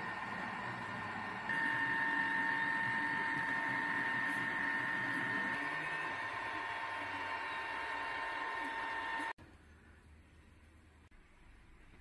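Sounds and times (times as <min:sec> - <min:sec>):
printer fan noise: 0:00.0 - 0:09.4
printer high whine: 0:00.0 - 0:09.4.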